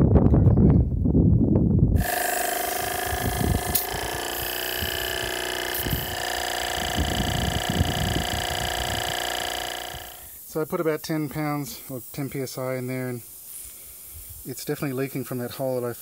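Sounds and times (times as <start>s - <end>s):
air compressor whining: 2.0s - 10.5s.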